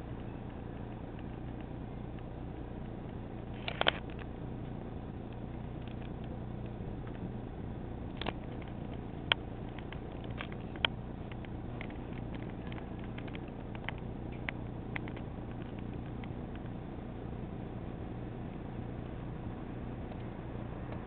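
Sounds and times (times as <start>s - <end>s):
low machine hum: 0.0s - 21.0s
sharp clicks: 0.2s - 7.2s, 8.0s - 16.8s, 20.0s - 21.0s.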